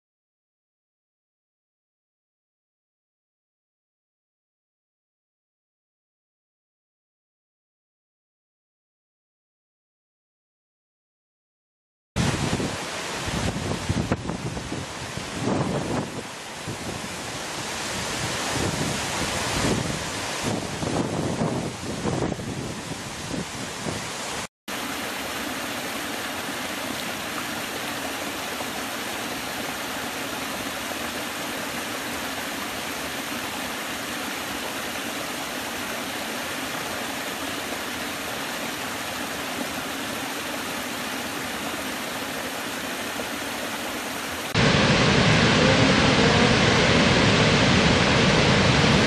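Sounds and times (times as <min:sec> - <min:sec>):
wind on microphone: 0:12.2 - 0:24.5, 0:44.5 - 0:49.0
large waterfall rushing: 0:12.2 - 0:49.0.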